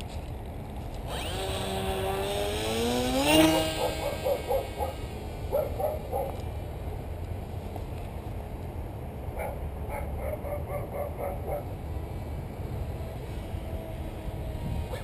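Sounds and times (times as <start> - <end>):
model plane motor whining: 1.0 - 5.2, 12.9 - 15.0
short pitched pulses: 1.1 - 5.2.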